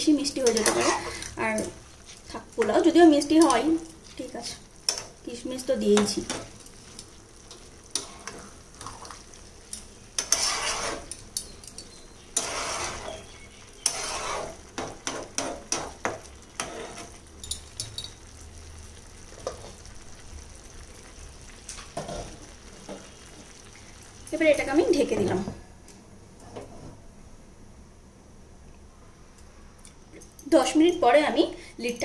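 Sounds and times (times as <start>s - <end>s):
spoon scraping rice in a pot: 0.4s - 2.3s, 7.9s - 17.9s
spoon clinking against pot: 11.1s - 13.2s, 17.4s - 18.2s.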